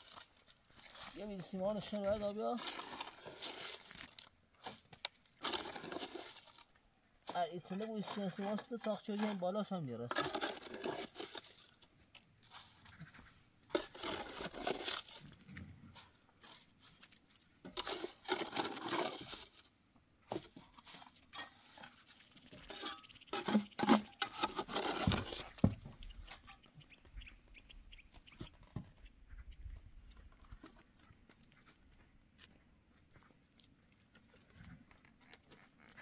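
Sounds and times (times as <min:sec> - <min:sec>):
trowel scraping mortar: 0:00.0 - 0:19.7, 0:20.3 - 0:26.7.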